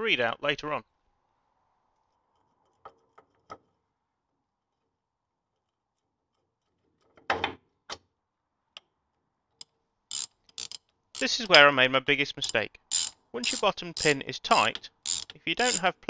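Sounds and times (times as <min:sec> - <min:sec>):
metal clicks and knocks: 0:09.6 - 0:11.6
metal parts clattering: 0:10.1 - 0:11.6, 0:12.4 - 0:15.9.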